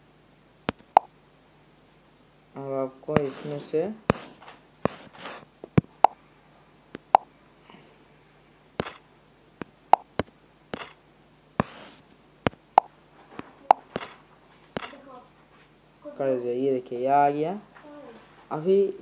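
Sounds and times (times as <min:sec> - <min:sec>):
fingertip taps on touchscreen: 0:00.7 - 0:01.1, 0:05.8 - 0:06.2, 0:07.0 - 0:07.3, 0:08.8 - 0:09.0, 0:09.9 - 0:11.0, 0:11.6 - 0:11.9, 0:12.5 - 0:12.9, 0:13.7 - 0:14.2, 0:14.8 - 0:15.0
soft swipes on touchscreen: 0:03.2 - 0:05.4, 0:11.6 - 0:12.0, 0:13.4 - 0:14.2.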